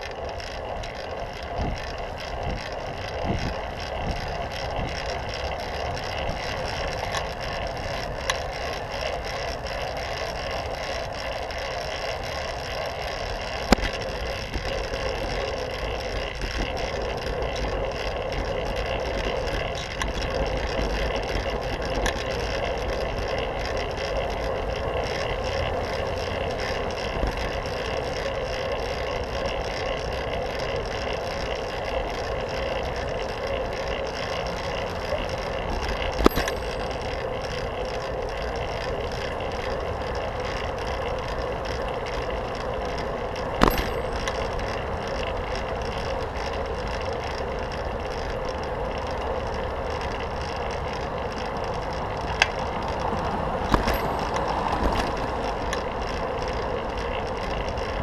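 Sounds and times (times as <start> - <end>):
bicycle tyre and wind noise: 0.0 - 58.0
car traffic passing: 49.8 - 58.0.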